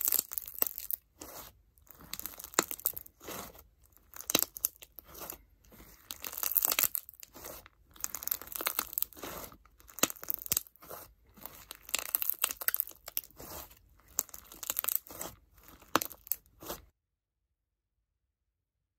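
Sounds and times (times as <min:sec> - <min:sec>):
slime crunching and crackling: 0:00.0 - 0:16.9.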